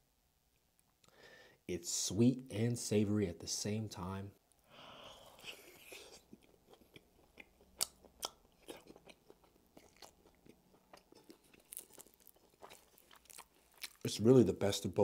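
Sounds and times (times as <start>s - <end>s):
person chewing pizza: 5.1s - 14.1s.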